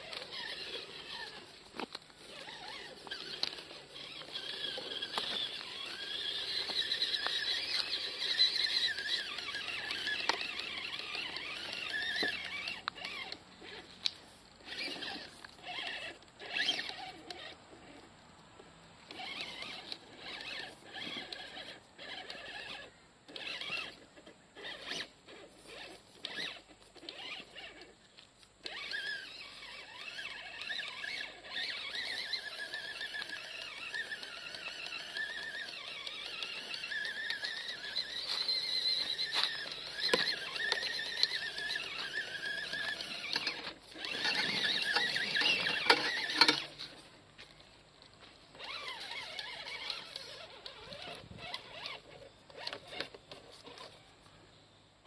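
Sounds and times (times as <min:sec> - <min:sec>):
electric motor and gearbox whining: 0:00.0 - 0:54.5
rough noise: 0:35.8 - 0:47.2.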